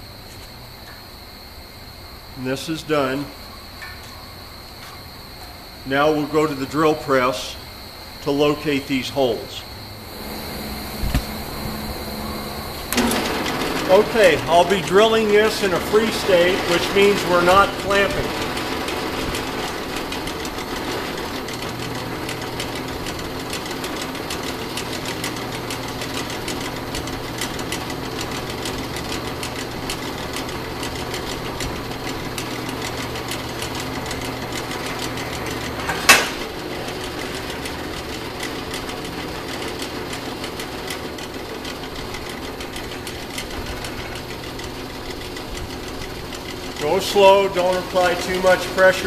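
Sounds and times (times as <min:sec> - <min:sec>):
drill press cutting steel: 0:10.1 - 0:49.0.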